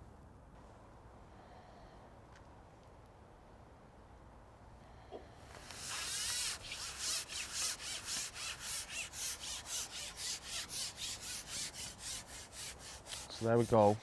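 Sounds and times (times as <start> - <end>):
fishing line rubbing through hands: 5.6 - 14.0.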